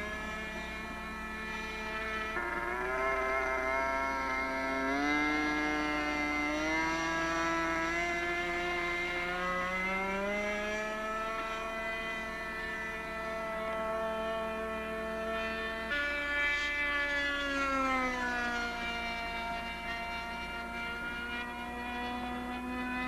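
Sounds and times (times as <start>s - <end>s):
model aircraft engine buzzing: 0.0s - 23.0s.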